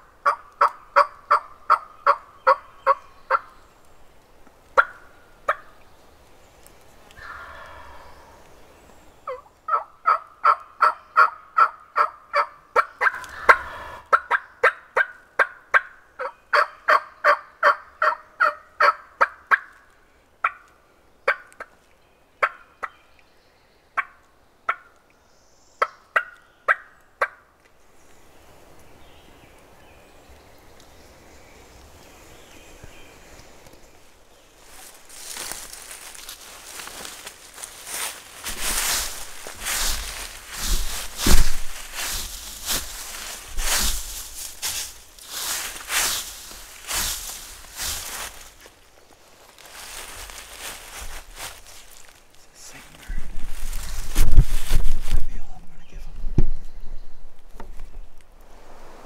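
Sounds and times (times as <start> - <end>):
turkey gobble: 0.2 - 3.4, 9.3 - 19.7, 20.4 - 20.6, 21.3 - 21.6, 25.8 - 27.4.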